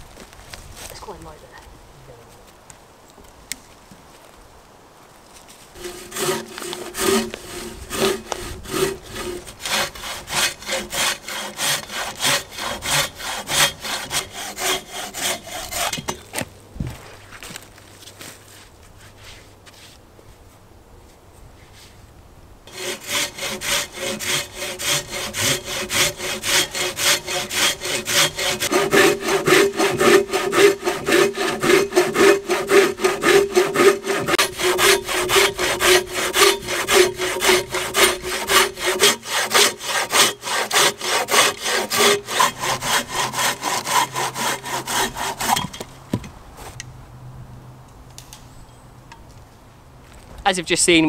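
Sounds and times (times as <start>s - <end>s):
hand saw cutting a log: 5.8s - 17.0s, 22.7s - 45.9s.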